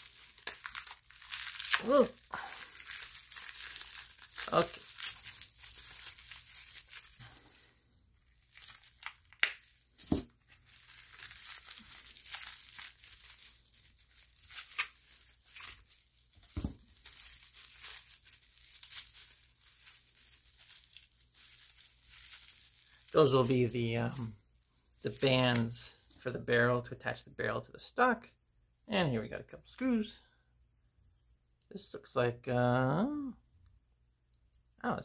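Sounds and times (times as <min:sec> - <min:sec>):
plastic wrapping crinkling and tearing: 0:00.0 - 0:26.3.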